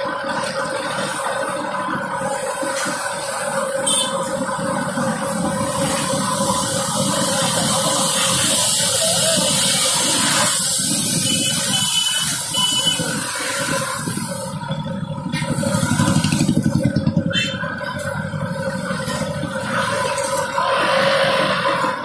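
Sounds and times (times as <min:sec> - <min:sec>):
motorcycles and rickshaws passing: 0:00.0 - 0:22.0.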